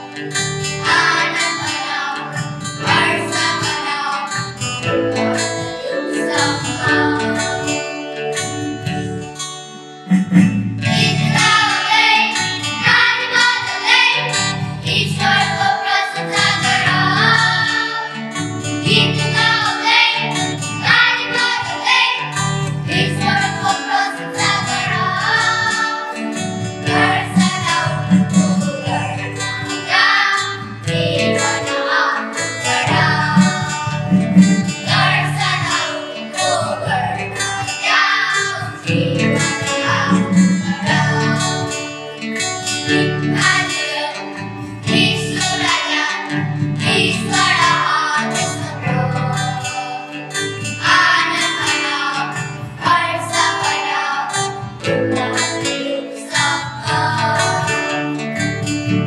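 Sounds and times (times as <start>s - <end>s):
children's choir singing a hymn: 0.0s - 8.0s, 10.1s - 57.9s
guitar: 0.0s - 59.0s
keyboard: 0.0s - 59.0s
steady drum beat: 10.1s - 11.6s.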